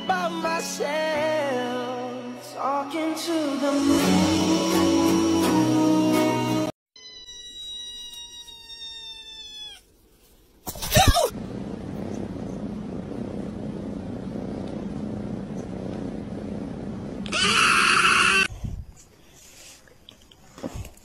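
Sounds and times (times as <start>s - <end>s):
kitten meowing: 7.0s - 9.9s
steady low rumble: 11.3s - 17.3s.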